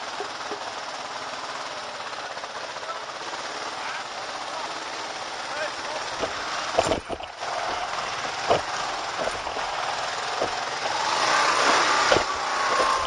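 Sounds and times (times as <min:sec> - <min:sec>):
motorcycle engine running: 0:00.0 - 0:13.0
motorcycle jolting over bumps: 0:05.6 - 0:13.0.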